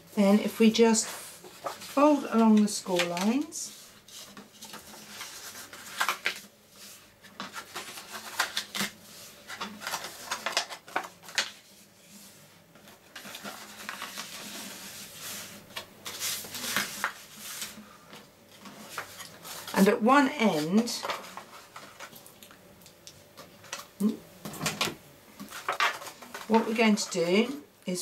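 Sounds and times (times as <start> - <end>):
paper being folded and creased: 1.0 - 17.8, 18.5 - 22.2, 25.4 - 27.1.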